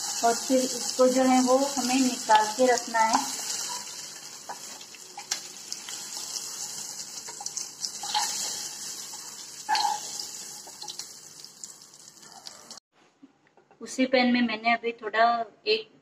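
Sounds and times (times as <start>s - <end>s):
eggs sizzling in oil: 0.0s - 12.8s.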